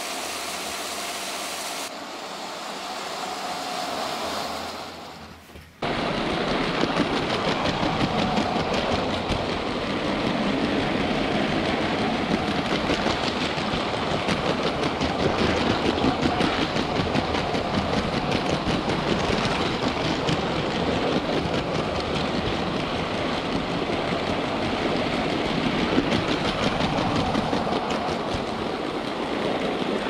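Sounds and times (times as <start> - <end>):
quiet train running noise: 0.0 - 30.0.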